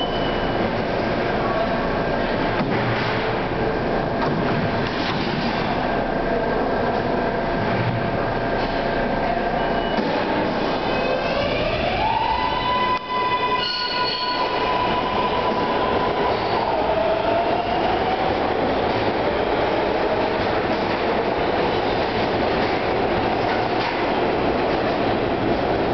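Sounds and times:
train wheels on rails: 12.8 - 25.9.

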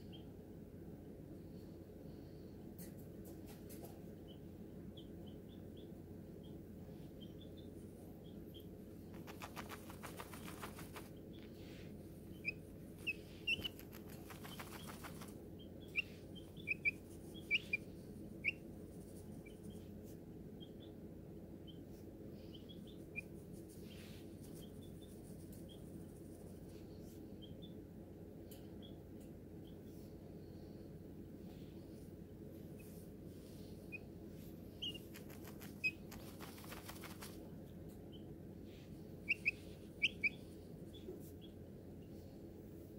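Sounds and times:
chick peeping: 3.8 - 11.6, 12.3 - 19.9, 34.7 - 37.4, 39.2 - 41.6
rustling on a towel: 9.1 - 12.1, 12.9 - 15.4, 32.6 - 37.4.

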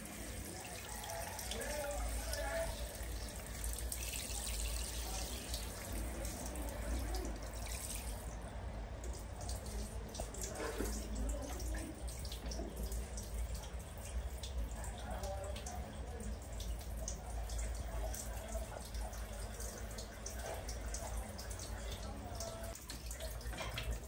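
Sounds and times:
shower water splashing into basin: 0.0 - 24.0.

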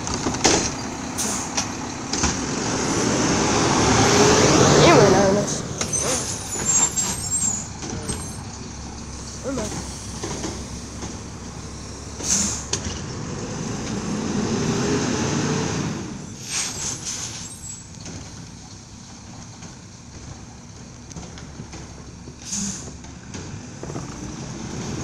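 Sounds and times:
garbage truck engine running: 0.0 - 25.0
short hiss: 9.7 - 12.7, 16.4 - 17.6.

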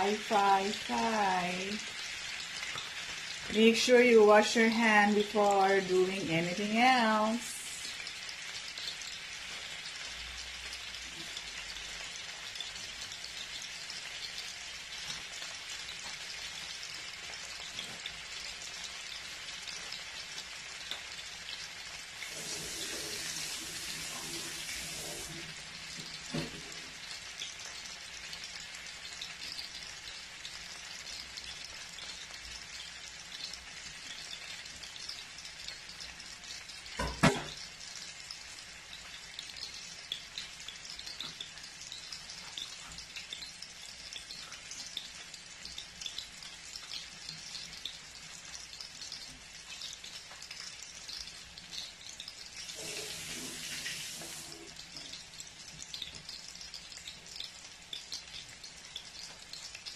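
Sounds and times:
tofu sizzling in hot oil: 0.0 - 59.9.

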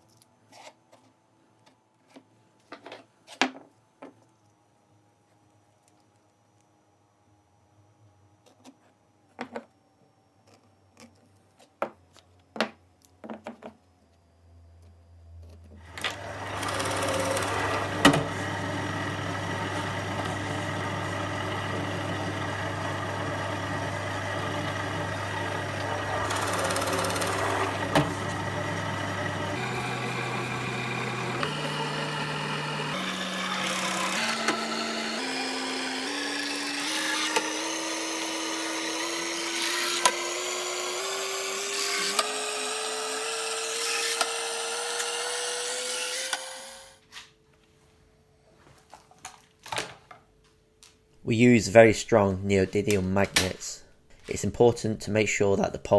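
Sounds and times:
drill press boring wood: 15.8 - 47.0.

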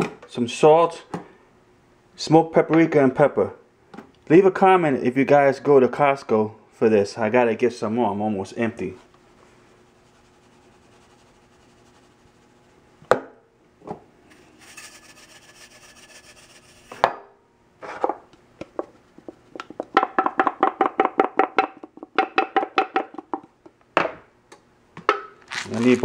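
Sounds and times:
granules hissing from plastic shaker: 14.3 - 16.9
metal shaker rattling: 14.3 - 17.0.

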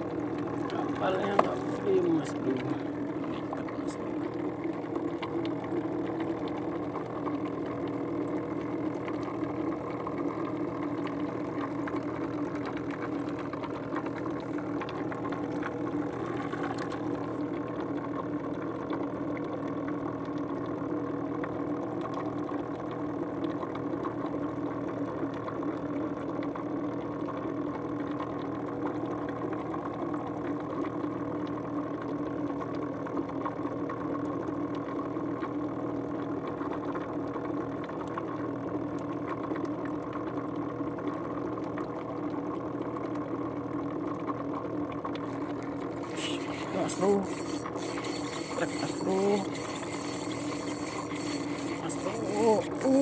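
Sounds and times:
boat engine idling: 0.5 - 4.1, 45.3 - 53.0.

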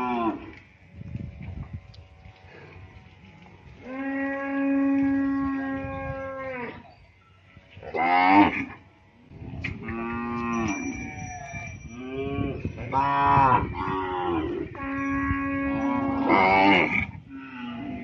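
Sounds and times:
cattle mooing: 0.0 - 0.6, 3.8 - 6.8, 7.8 - 8.8, 12.2 - 18.0.

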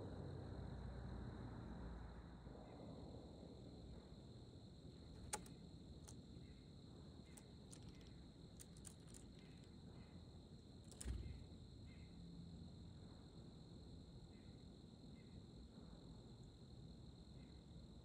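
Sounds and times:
faint high-pitched hum: 0.0 - 18.0
bird pecking on wood: 5.2 - 6.2, 7.7 - 9.7, 10.9 - 11.3.

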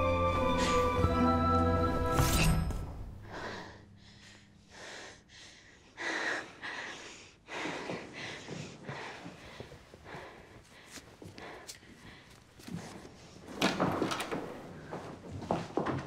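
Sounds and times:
music with held tones: 0.0 - 2.3.

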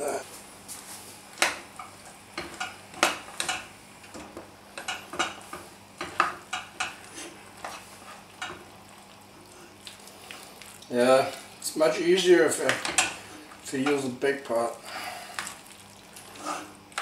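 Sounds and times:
spoon scraping and knocking on pot: 16.3 - 16.8.

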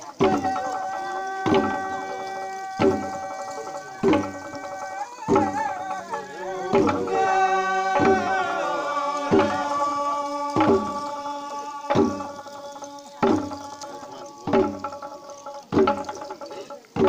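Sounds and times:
drum struck at steady beat: 0.0 - 17.0
group of voices chanting: 0.0 - 17.0.

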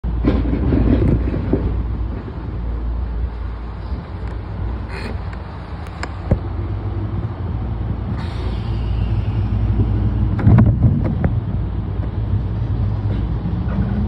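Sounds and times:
train equipment humming: 0.0 - 14.0.

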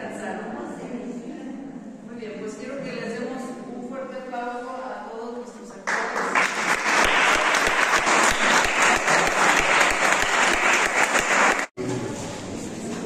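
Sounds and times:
audience applauding: 5.9 - 11.8.

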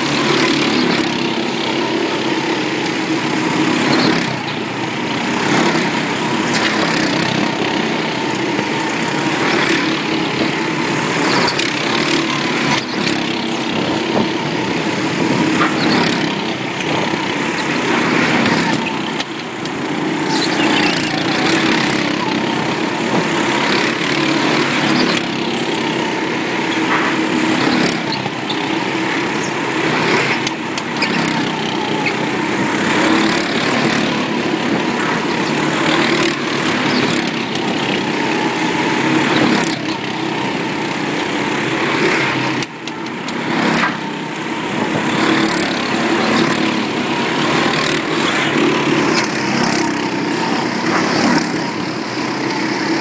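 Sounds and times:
go-kart engines racing: 0.0 - 53.0.

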